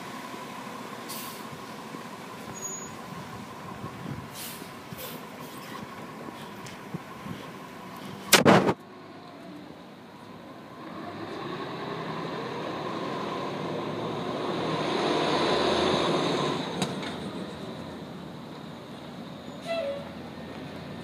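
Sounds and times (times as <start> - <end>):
bus driving past: 0.0 - 21.0.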